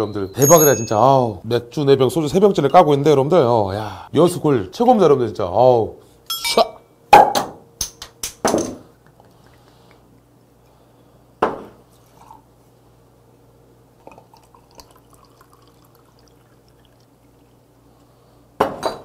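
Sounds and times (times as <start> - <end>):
liquid dripping: 14.0 - 17.6
beer pouring into glass: 14.0 - 17.7.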